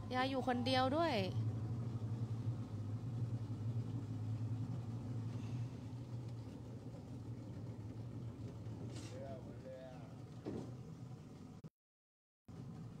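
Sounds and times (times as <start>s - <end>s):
boat engine humming: 0.0s - 11.7s, 12.5s - 13.0s.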